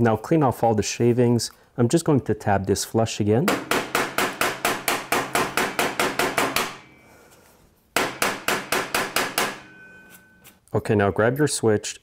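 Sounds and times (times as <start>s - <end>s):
hammer tapping on metal: 3.5s - 7.0s, 8.0s - 10.2s.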